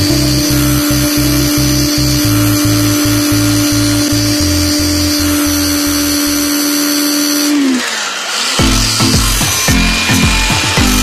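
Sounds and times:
music with rhythmic bass line: 0:00.0 - 0:06.2, 0:08.6 - 0:11.0
electric power tool whining: 0:00.0 - 0:11.0.

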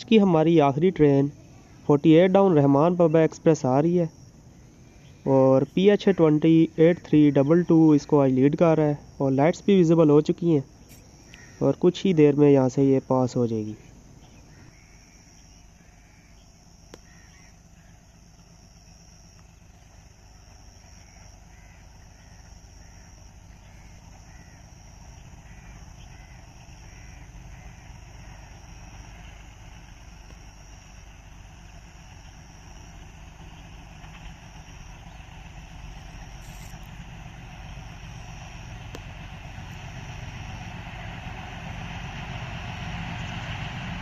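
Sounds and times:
diesel train rumbling: 0:00.0 - 0:44.0
crows cawing: 0:05.8 - 0:06.6, 0:11.0 - 0:11.8, 0:14.3 - 0:18.4, 0:20.6 - 0:30.4
high insect buzz: 0:07.1 - 0:11.7, 0:14.3 - 0:40.8.

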